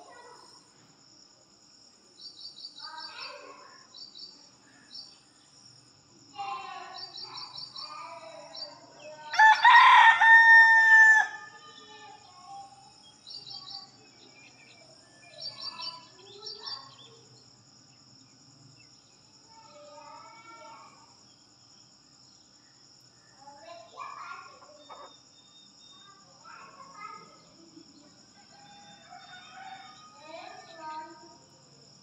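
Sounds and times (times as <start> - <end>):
rooster crowing: 9.3 - 11.6, 28.3 - 30.6.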